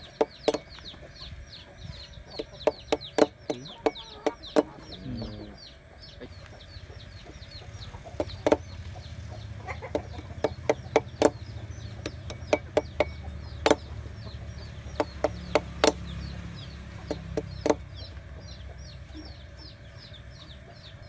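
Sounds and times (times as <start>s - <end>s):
chickens clucking: 0.0s - 21.0s
knife chopping wooden stick: 2.4s - 4.8s, 9.9s - 13.9s, 15.0s - 16.0s, 17.0s - 17.8s.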